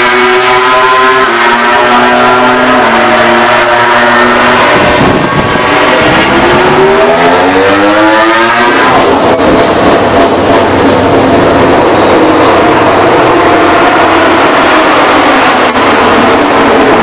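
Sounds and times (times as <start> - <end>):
race bike engine accelerating: 4.6 - 10.9.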